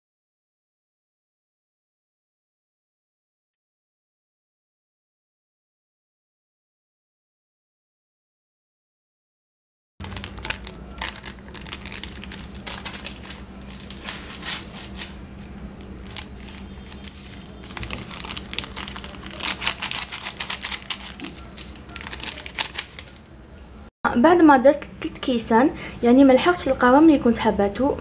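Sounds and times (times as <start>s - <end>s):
paper sachets crinkling and tearing: 10.0s - 23.3s.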